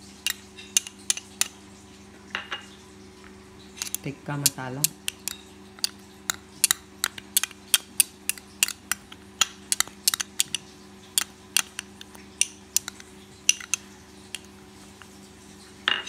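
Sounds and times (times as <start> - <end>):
spoon clinking against glass bowl: 3.8 - 14.5.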